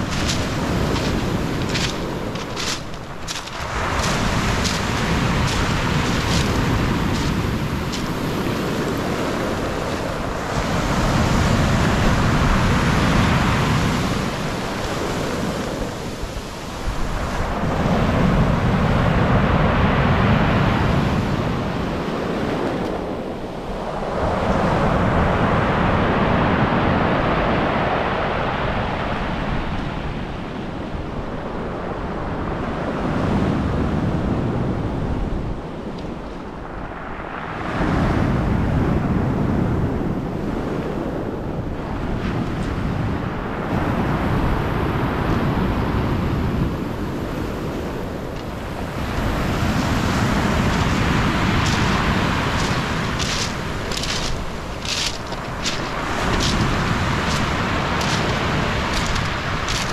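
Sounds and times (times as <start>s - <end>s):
surf breaking on beach: 0.0s - 29.6s, 41.8s - 59.9s
wind buffeting microphone: 0.0s - 59.9s.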